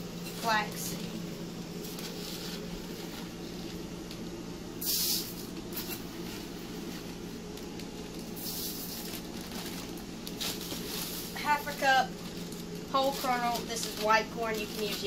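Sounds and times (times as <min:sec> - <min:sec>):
steady low hum: 0:00.0 - 0:15.0
seeds pouring into metal bucket: 0:08.4 - 0:09.8, 0:10.4 - 0:11.4.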